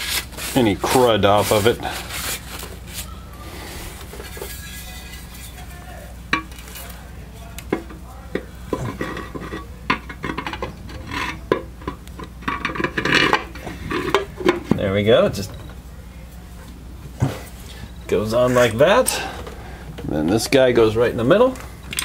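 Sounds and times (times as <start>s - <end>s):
metal cover knocking and scraping: 4.0s - 6.8s, 7.7s - 14.9s.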